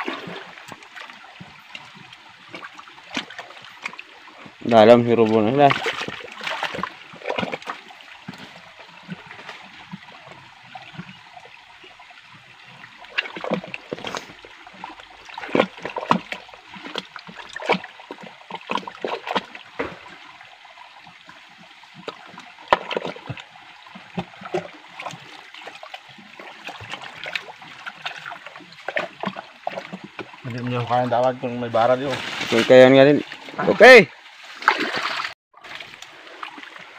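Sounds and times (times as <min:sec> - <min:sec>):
splashing in water: 0:00.0 - 0:31.1, 0:31.8 - 0:36.9
stream running over rocks: 0:00.0 - 0:36.9
sharp knocks: 0:19.7 - 0:20.2.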